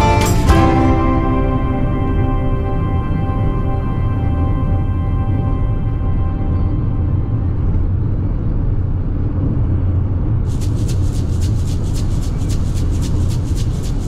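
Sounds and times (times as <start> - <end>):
car road and engine rumble: 0.4 - 14.0
fast high-pitched ticking: 10.5 - 14.0.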